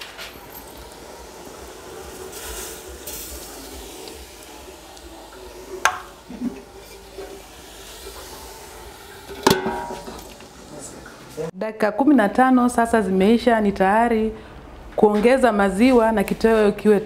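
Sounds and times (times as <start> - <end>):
fish sizzling in a pot: 0.0 - 11.5.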